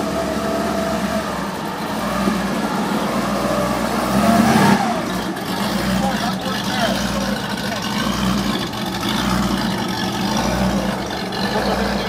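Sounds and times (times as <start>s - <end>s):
car engine running: 0.0s - 12.0s.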